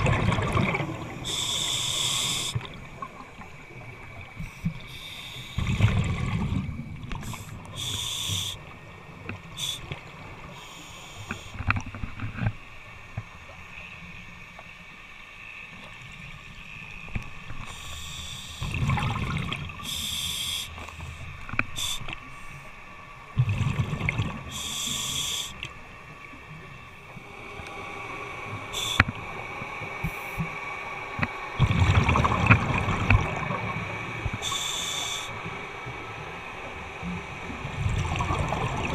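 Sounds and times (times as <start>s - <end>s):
gurgling exhaled bubbles: 0.0s - 1.5s, 5.6s - 7.6s, 18.6s - 19.9s, 23.4s - 24.6s, 31.3s - 34.6s, 37.1s - 38.9s
hissing regulator inhalations: 1.2s - 2.7s, 4.4s - 5.9s, 7.2s - 8.7s, 9.5s - 11.7s, 17.6s - 18.8s, 19.8s - 21.0s, 21.6s - 22.7s, 24.5s - 25.7s, 27.2s - 30.6s, 34.3s - 35.8s.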